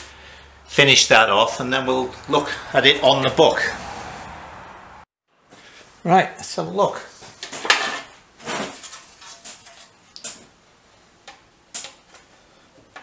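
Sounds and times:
metal sheet handling rustle: 7.1 - 10.5.

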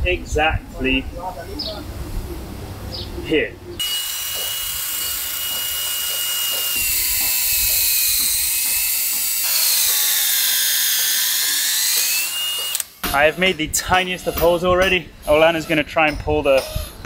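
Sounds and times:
cordless drill boring into wood: 3.8 - 14.7.

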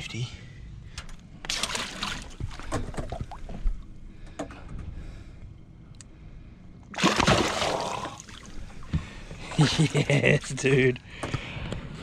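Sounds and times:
water slapping and dripping: 1.4 - 3.8, 7.0 - 9.0
fish splashing: 1.5 - 3.5, 6.9 - 8.6.

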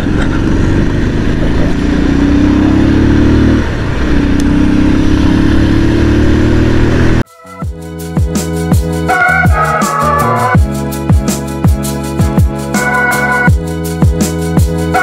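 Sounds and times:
motorcycle engine accelerating: 0.0 - 7.2.

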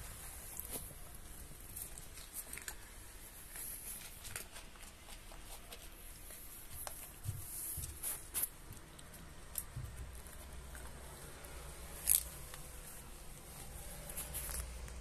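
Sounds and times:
cats crunching dry kibble: 0.0 - 15.0.

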